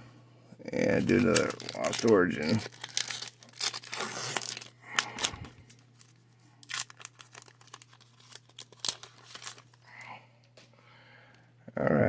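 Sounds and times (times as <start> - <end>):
foil wrapper crinkling and tearing: 0.8 - 10.1.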